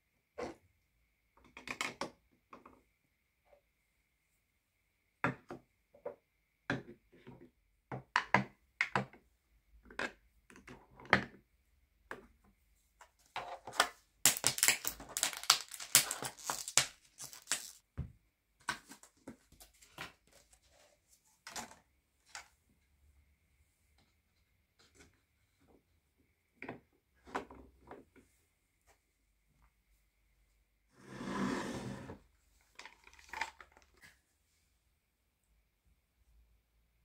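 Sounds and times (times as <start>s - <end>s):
plastic tubes tapping on wood: 14.3s - 17.8s
wrapping crinkling: 14.3s - 17.8s.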